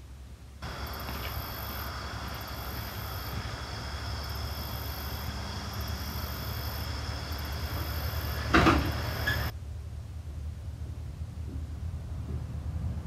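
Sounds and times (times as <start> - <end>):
insects buzzing: 0.6 - 9.5
engine idling: 0.6 - 12.5
loud clunk: 8.4 - 9.5.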